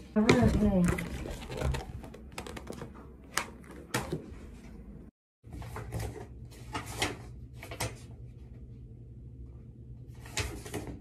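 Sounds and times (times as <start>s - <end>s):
paper rustling: 0.8s - 4.2s.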